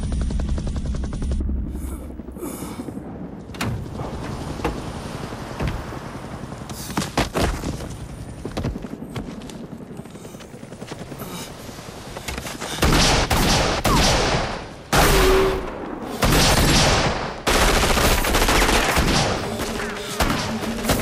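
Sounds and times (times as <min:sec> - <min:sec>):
steady low rumble: 0:00.0 - 0:06.9.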